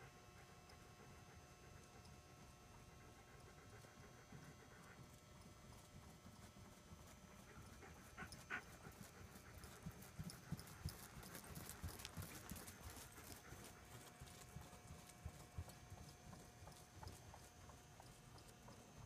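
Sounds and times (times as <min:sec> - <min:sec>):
hoofbeats on soft footing: 0:04.3 - 0:19.0.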